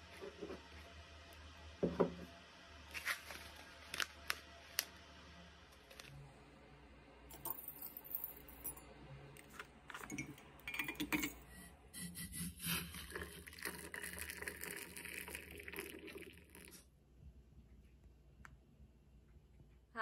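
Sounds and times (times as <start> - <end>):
tea infuser and spoon clinking: 10.0 - 11.6, 12.4 - 16.7
water pouring into a mug: 12.6 - 16.9.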